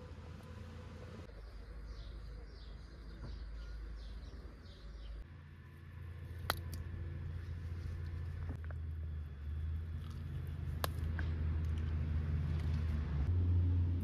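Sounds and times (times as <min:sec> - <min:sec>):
bird chirping: 0:01.2 - 0:05.3.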